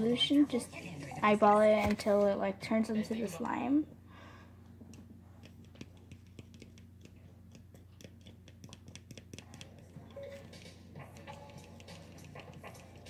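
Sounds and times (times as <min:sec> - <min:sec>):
plastic utensil stirring slime: 0:04.8 - 0:13.0.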